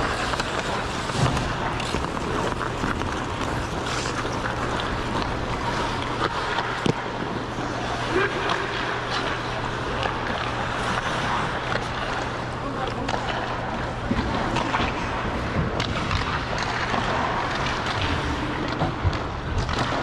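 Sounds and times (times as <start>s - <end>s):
ice skates scraping on ice: 0.0s - 18.4s
constant low hum: 0.0s - 20.0s.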